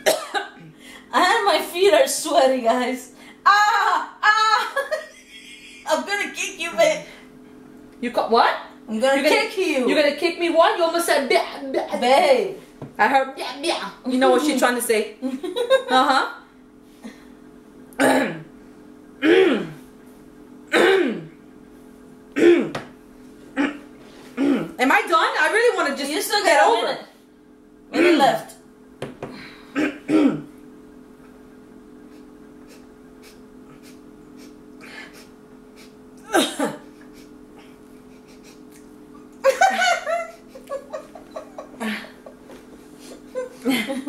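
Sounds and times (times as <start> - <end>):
faint room hum: 0.0 - 44.0
person laughing and giggling: 4.4 - 5.9, 38.0 - 38.8, 39.4 - 44.0
woman gagging: 36.2 - 36.9, 39.5 - 44.0.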